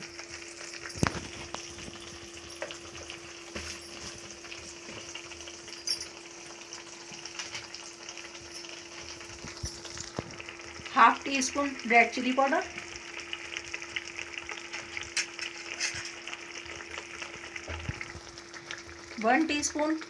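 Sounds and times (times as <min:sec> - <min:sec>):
masala sizzling in hot oil: 0:00.0 - 0:20.0
metal spatula scraping a pan: 0:15.3 - 0:16.3.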